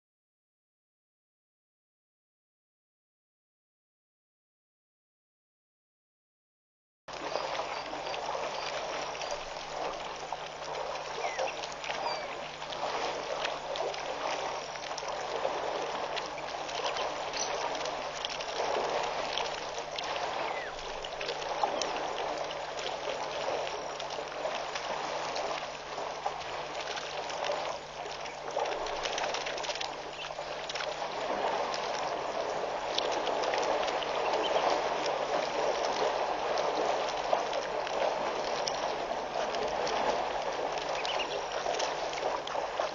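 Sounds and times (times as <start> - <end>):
steady low hum: 7.1 - 42.9
water sloshing and splashing: 7.1 - 42.9
small crackles: 21.0 - 42.9.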